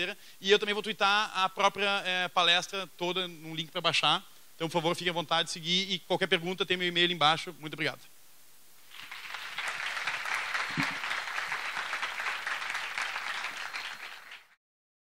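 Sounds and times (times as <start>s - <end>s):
audience applauding: 8.9s - 14.6s.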